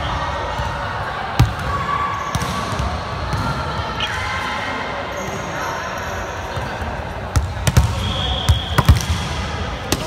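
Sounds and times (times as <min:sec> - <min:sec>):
background chatter: 0:00.0 - 0:10.0
volleyball thudding: 0:07.3 - 0:10.0.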